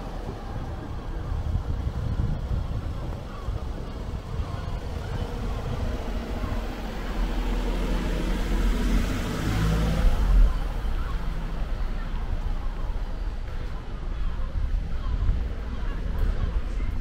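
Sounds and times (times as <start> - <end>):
car driving past: 4.5 - 13.3.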